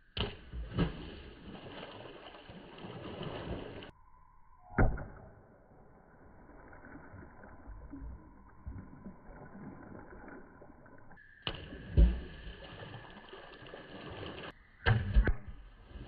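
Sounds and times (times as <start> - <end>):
low muffled sloshing: 0.0 - 3.9, 6.3 - 14.5
slowed-down splashes in pool: 0.0 - 3.9, 5.7 - 14.7.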